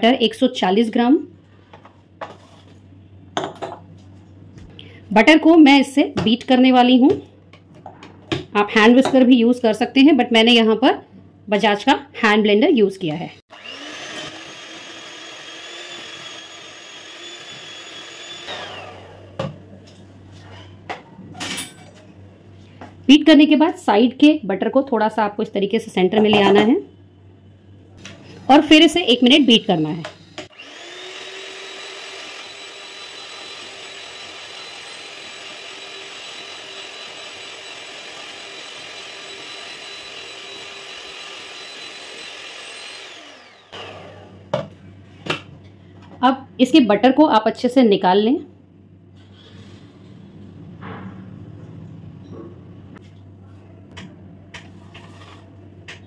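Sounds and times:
electric hand mixer whining: 13.4 - 19.5, 29.0 - 44.5.

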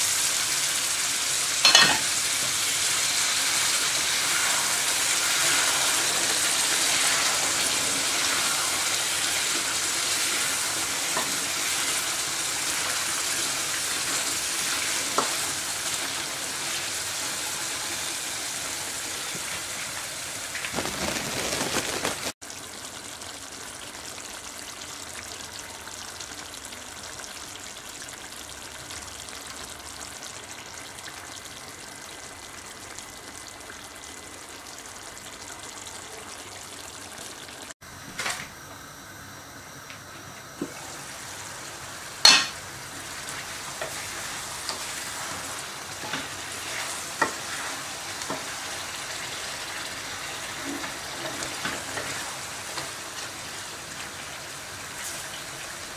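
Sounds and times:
curry sizzling in a pot: 0.0 - 55.9.

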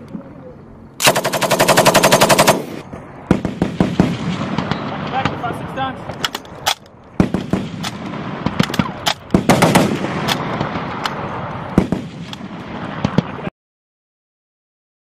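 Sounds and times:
heavy machine-gun fire: 1.0 - 5.4, 7.2 - 13.5.

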